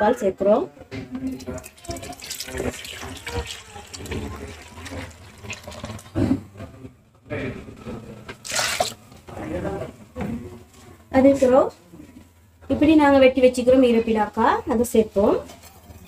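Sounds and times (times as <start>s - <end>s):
liquid pouring into a metal pot: 1.2s - 6.3s, 8.4s - 9.0s.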